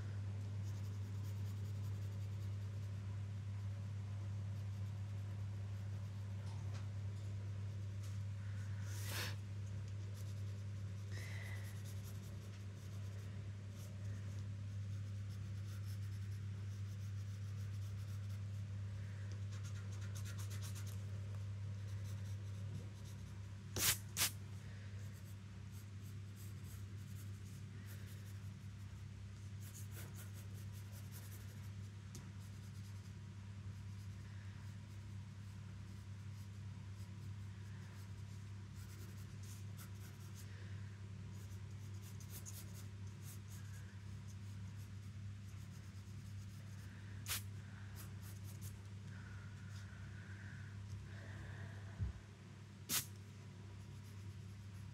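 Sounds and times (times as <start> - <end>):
steady low hum: 0.0 - 54.9
pencil scratching on paper: 0.6 - 3.0, 11.6 - 18.8, 19.4 - 21.0, 25.1 - 31.8, 32.4 - 40.4, 41.3 - 47.4, 53.8 - 54.9.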